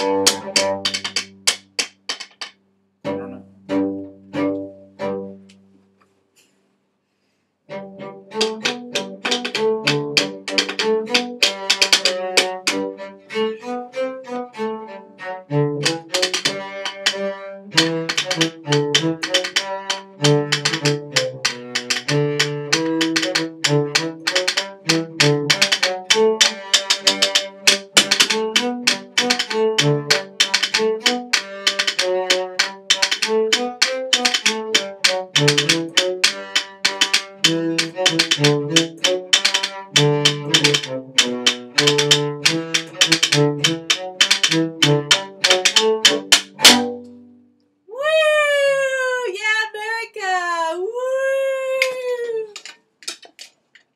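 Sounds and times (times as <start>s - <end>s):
cello bowed in a lively tune: 0.0s - 1.7s, 3.0s - 5.7s, 7.7s - 47.4s
fast drumming on a box: 8.4s - 12.7s, 15.8s - 17.2s, 17.8s - 46.8s.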